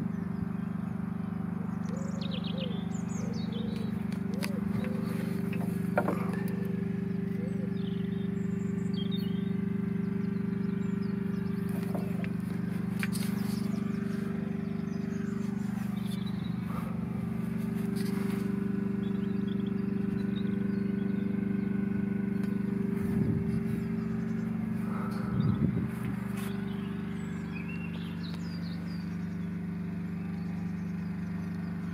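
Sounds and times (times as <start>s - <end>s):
birds chirping faintly: 0.0s - 31.9s
low engine hum: 0.0s - 31.9s.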